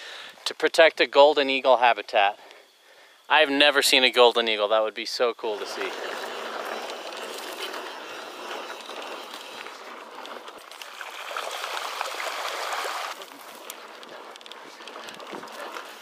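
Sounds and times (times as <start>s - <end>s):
bike tyres rolling on gravel: 5.5s - 16.0s
gravel crunches and clicks: 5.7s - 16.0s.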